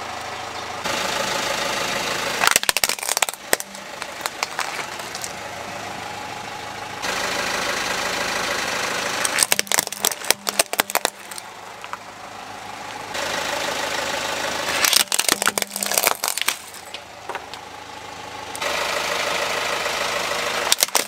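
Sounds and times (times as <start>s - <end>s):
car engine idling: 0.0s - 21.0s
plastic toys cracking under tyre: 2.4s - 5.4s, 9.2s - 12.0s, 14.8s - 17.6s, 20.7s - 21.0s.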